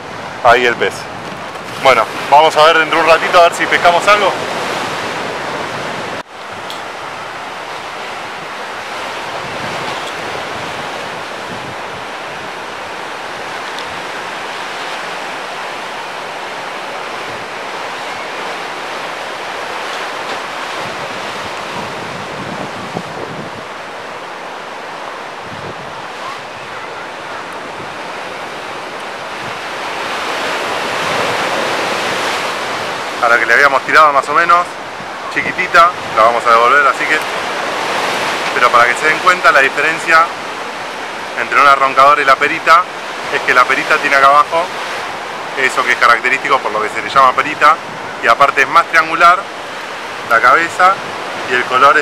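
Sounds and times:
ocean surf breaking: 0:00.0 - 0:52.0
wind on microphone: 0:03.6 - 0:33.2, 0:47.8 - 0:48.2.

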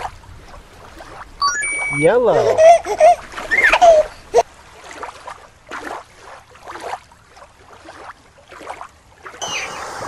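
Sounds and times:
small waves lapping on gravel: 0:04.4 - 0:10.0.

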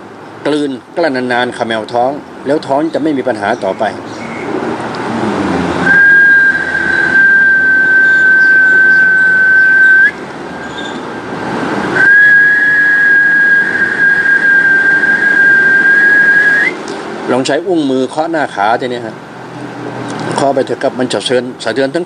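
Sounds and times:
person whistling high notes: 0:05.8 - 0:10.2, 0:12.0 - 0:16.8.

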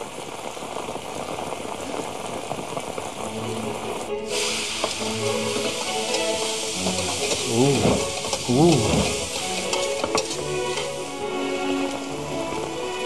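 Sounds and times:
food sizzling in frying: 0:00.0 - 0:13.0
steady rain: 0:00.0 - 0:13.0
background music: 0:03.2 - 0:13.0.

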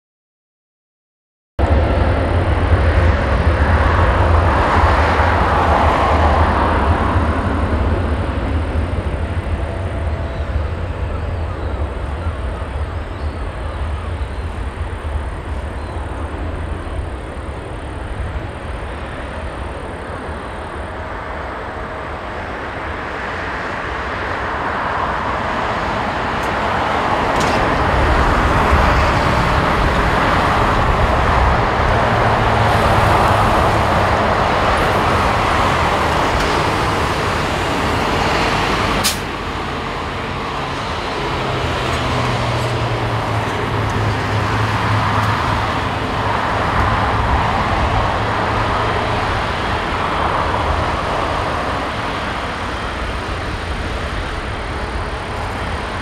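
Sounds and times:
jet engines roaring: 0:01.6 - 0:56.0
sharp click: 0:39.0 - 0:39.3.

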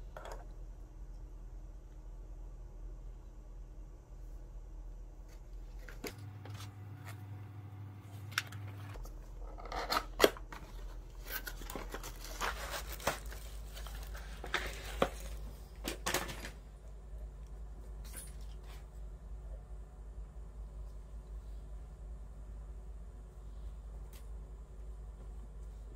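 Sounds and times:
plastic crinkling and tearing: 0:11.1 - 0:15.4.

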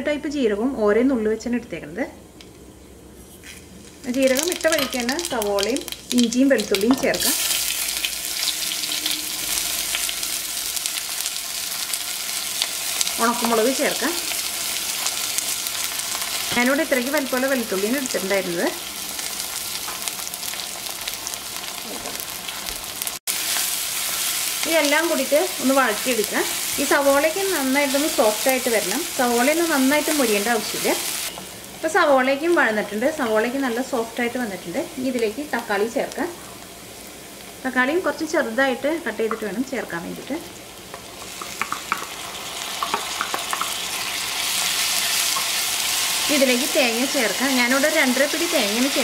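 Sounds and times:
spices sizzling in hot oil: 0:03.3 - 0:49.0.

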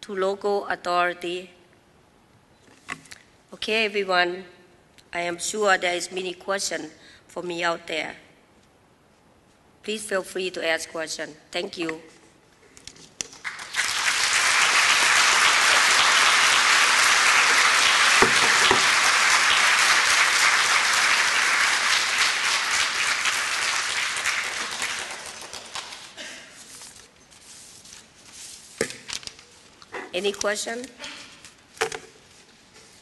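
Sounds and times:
audience applauding: 0:13.4 - 0:26.2.

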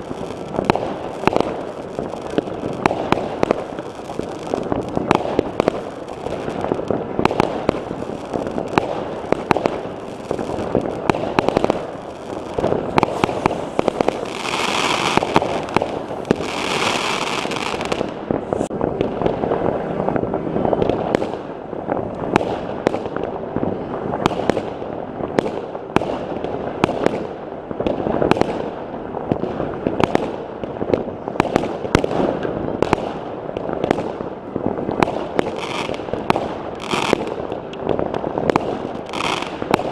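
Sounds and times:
fireworks hissing: 0:00.0 - 0:18.7
fireworks bangs and crackles: 0:00.0 - 0:39.9.

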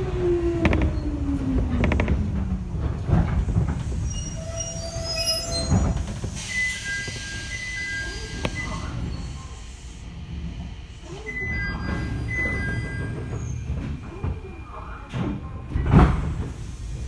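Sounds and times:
wheels and brakes squealing: 0:03.9 - 0:09.5, 0:11.2 - 0:13.8
electric train braking: 0:04.0 - 0:09.6
click: 0:08.4 - 0:08.6.

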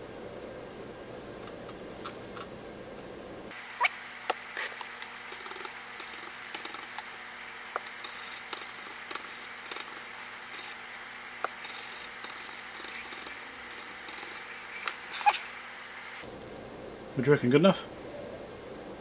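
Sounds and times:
paper wipe scrubbing circuit board: 0:04.4 - 0:15.6.

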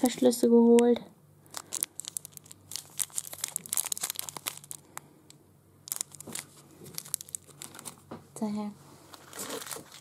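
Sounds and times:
plastic bag crinkling: 0:01.4 - 0:05.1, 0:05.8 - 0:08.1, 0:09.1 - 0:10.0.

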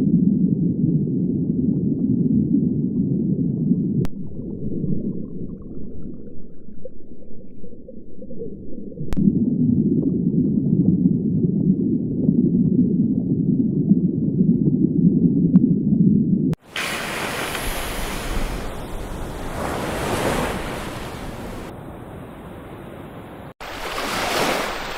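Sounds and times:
muffled underwater rumble: 0:00.0 - 0:16.5, 0:18.2 - 0:19.7.

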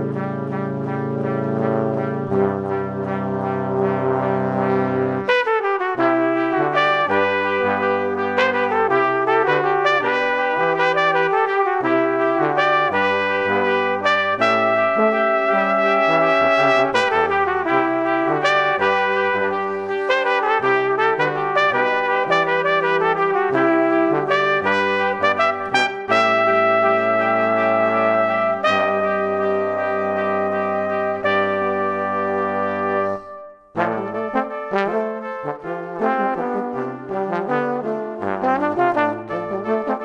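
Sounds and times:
brass quartet holding chords: 0:00.0 - 0:40.0.

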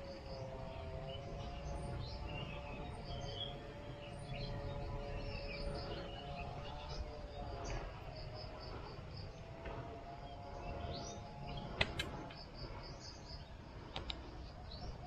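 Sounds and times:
birds chirping: 0:00.0 - 0:15.0
insects: 0:00.0 - 0:15.0
sharp clicks: 0:11.7 - 0:12.4, 0:13.9 - 0:14.3.

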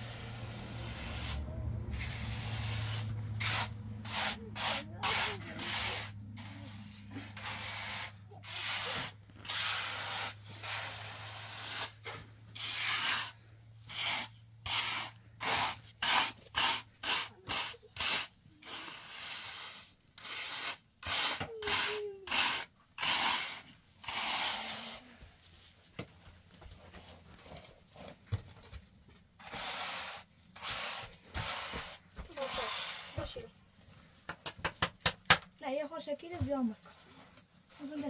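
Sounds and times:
trowel scraping wet cement: 0:00.0 - 0:25.2, 0:29.4 - 0:33.5.

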